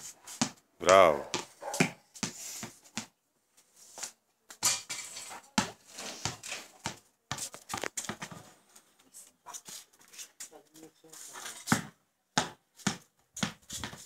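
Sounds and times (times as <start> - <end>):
basketball bouncing on concrete: 0.3 - 3.2, 5.6 - 8.5, 11.6 - 14.0
ball striking wall and hoop: 0.4 - 2.4, 11.7 - 14.0.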